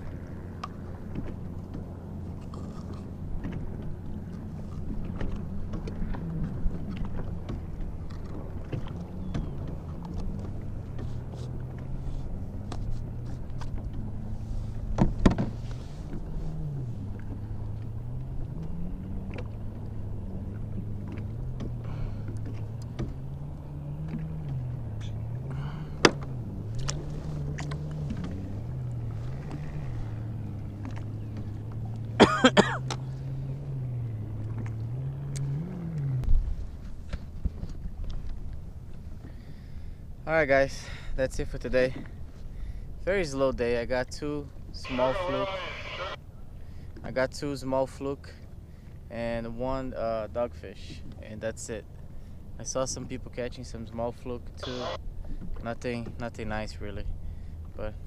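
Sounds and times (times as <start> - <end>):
motorboat engine running: 0.0 - 58.0.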